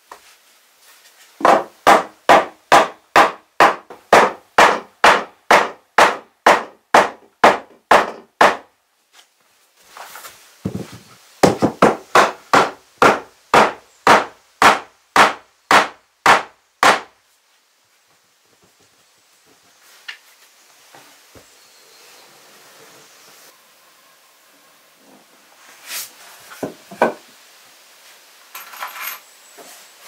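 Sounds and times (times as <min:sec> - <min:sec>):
hammer blows on floorboards: 0:10.6 - 0:17.1
board scraping: 0:25.0 - 0:27.2.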